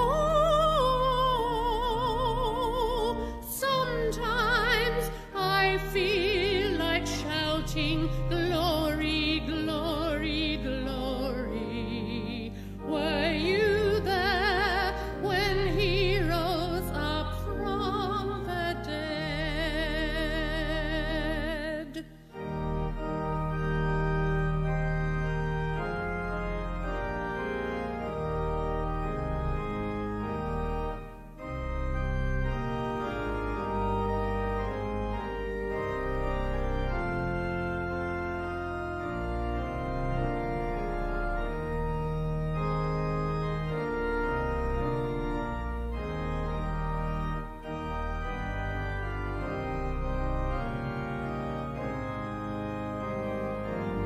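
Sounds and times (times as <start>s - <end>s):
organ playing hymn chords: 0.0s - 54.0s.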